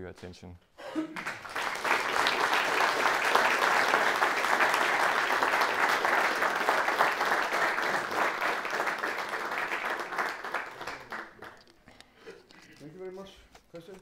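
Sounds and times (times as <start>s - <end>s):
audience applauding: 1.1s - 11.9s.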